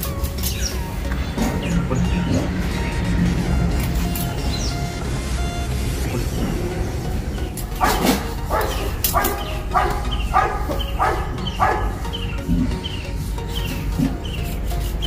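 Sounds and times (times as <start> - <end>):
dog barking: 7.8 - 12.3.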